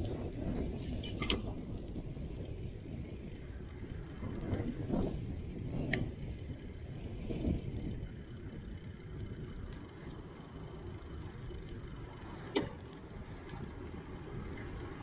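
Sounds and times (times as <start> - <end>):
wind on microphone: 0.0 - 9.8
tyres rolling on road: 0.0 - 15.0.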